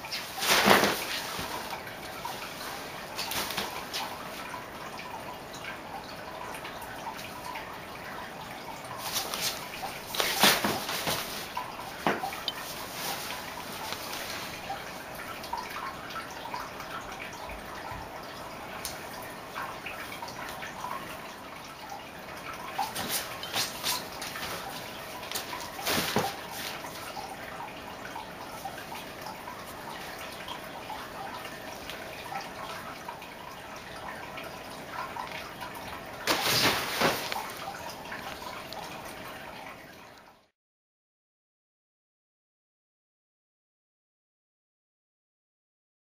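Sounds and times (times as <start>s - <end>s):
nylon tent rustling: 0.1s - 4.4s, 9.0s - 11.6s, 12.6s - 14.6s, 23.0s - 26.8s, 36.2s - 37.7s
kitten scrabbling in fabric tent: 9.0s - 11.5s, 25.3s - 26.4s, 36.3s - 37.6s.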